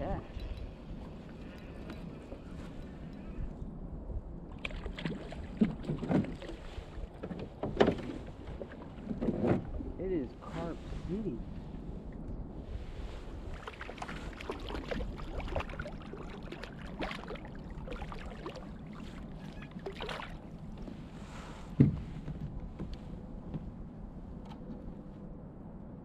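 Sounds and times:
clicks and knocks of fishing gear: 0.4 - 3.2.

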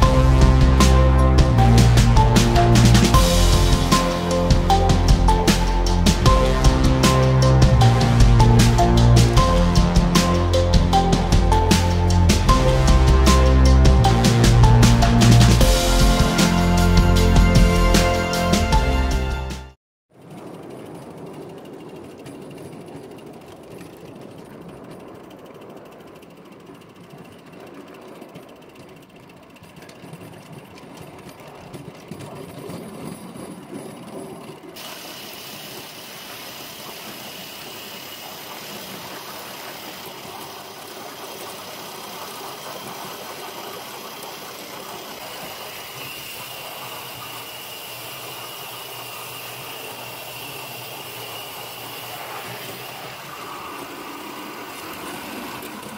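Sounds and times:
model steam locomotive rattling: 20.2 - 55.9
steady steam hiss: 34.8 - 55.9.

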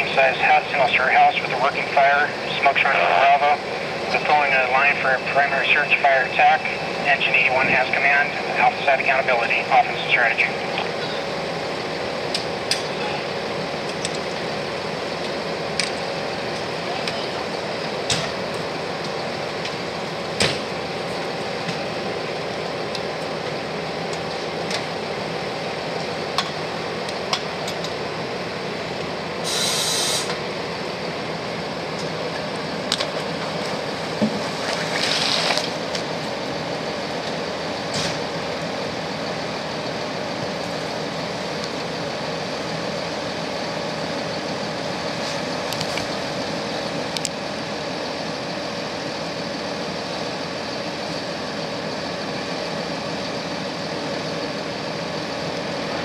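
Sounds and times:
fire engine running: 0.0 - 56.0
short hisses: 29.4 - 30.3.

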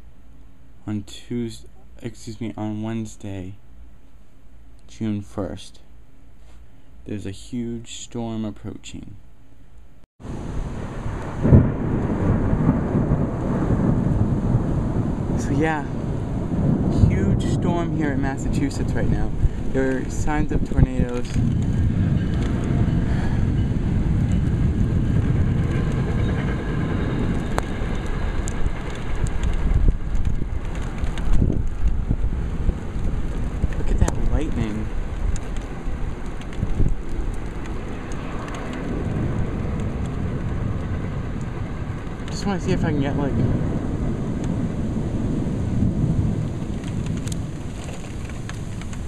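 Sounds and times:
thunder rumbling: 10.2 - 49.0
wind buffeting microphone: 10.2 - 49.0
raindrop ticks: 16.6 - 44.8, 45.7 - 49.0.

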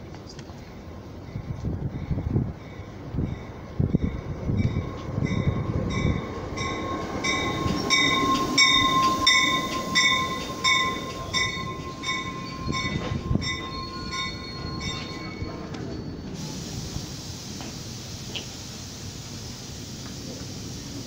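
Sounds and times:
rumble of train cars: 0.0 - 21.0
metallic train squeal: 1.2 - 17.0
rhythmic ringing: 4.6 - 16.4.

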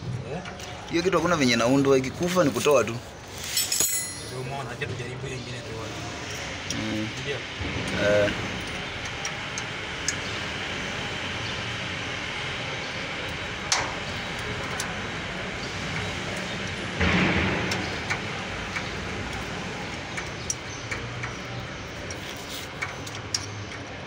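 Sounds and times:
steady background hum: 2.8 - 24.0
metallic clicks and taps of tool: 17.7 - 23.9.

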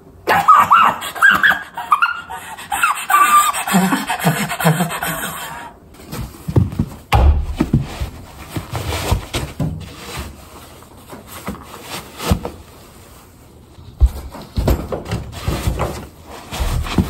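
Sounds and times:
boots and jeans rustling: 6.0 - 10.4, 16.4 - 17.0
boots thumping on floor: 6.5 - 8.4.

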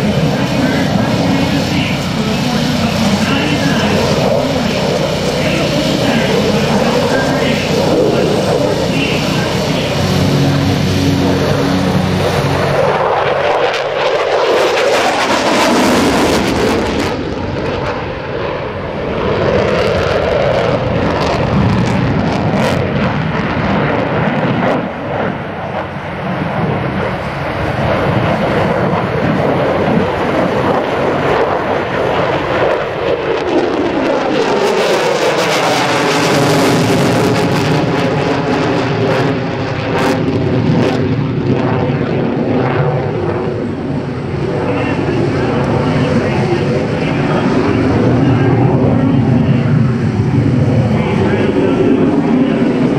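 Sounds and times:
jet engine roaring: 0.0 - 52.9.

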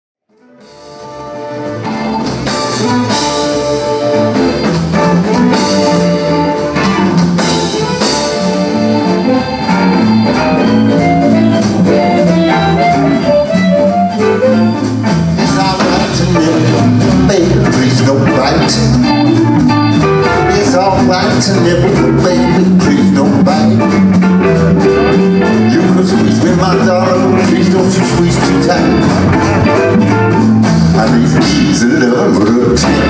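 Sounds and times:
amplified harmonica: 0.3 - 33.0
blues band playing live: 0.3 - 33.0.

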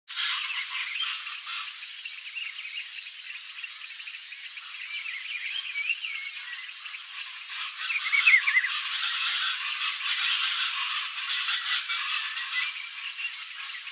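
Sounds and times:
insects hissing: 0.2 - 13.9.

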